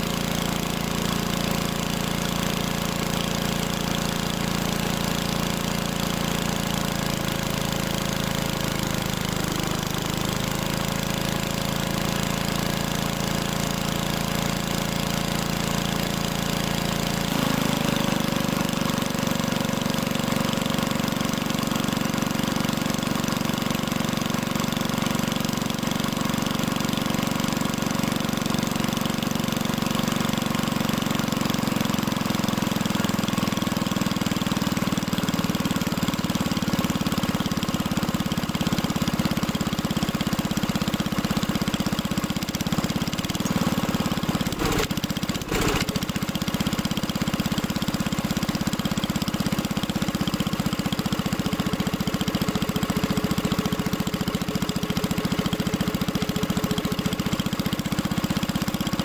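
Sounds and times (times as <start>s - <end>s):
air compressor engine running: 43.2s - 46.4s.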